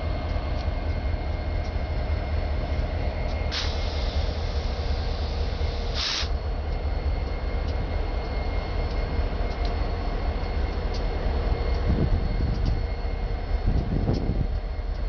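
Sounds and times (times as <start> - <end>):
hiss burst: 3.5 - 6.4
faint ticks: 10.4 - 11.9, 13.7 - 15.0.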